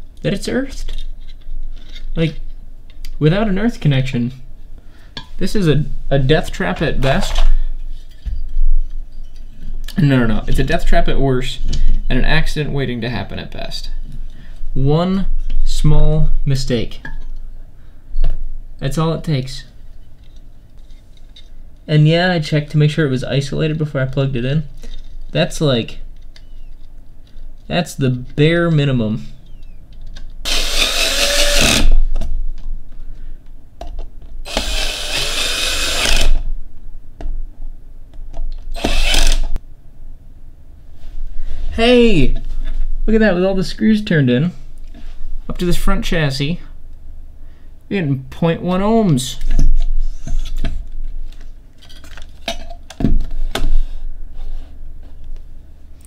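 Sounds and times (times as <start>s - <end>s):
power screwdriver running: 30.5s - 32.0s, 34.5s - 36.4s, 38.8s - 39.6s.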